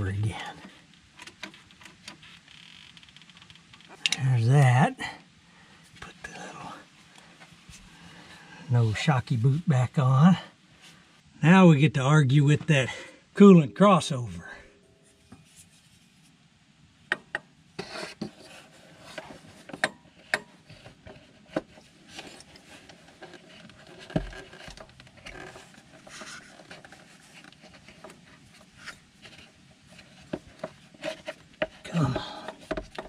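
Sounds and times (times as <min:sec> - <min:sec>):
rubbing and scraping: 0:15.0 - 0:16.4, 0:17.8 - 0:33.0.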